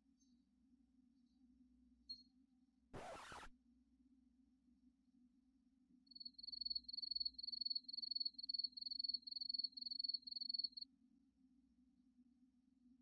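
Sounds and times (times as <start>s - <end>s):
cricket chirping: 6.1s - 10.8s.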